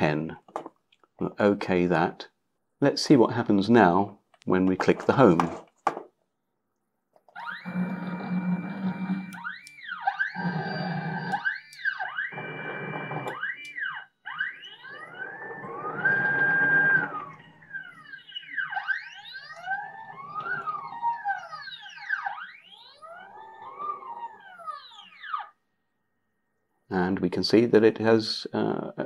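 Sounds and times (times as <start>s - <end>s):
stepper motors whining: 7.4s - 25.6s.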